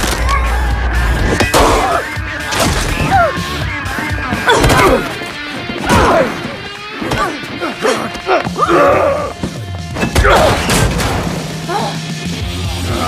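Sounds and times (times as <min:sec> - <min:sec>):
soundtrack music: 0:00.0 - 0:13.0
punches and thuds: 0:04.3 - 0:07.4
grunts of effort: 0:04.3 - 0:09.5.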